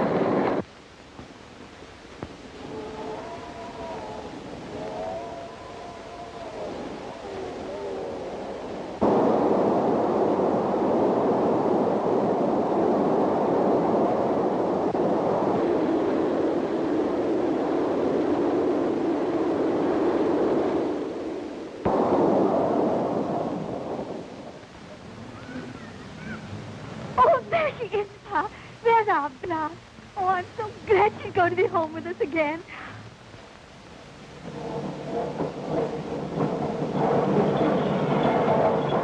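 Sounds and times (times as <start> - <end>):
steam locomotive rushing: 34.2 - 39.0.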